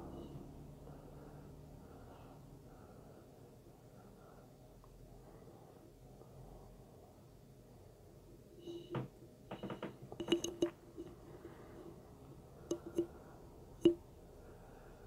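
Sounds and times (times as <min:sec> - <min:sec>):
sharp ringing clicks and knocks: 0:08.8 - 0:11.1, 0:12.7 - 0:13.1.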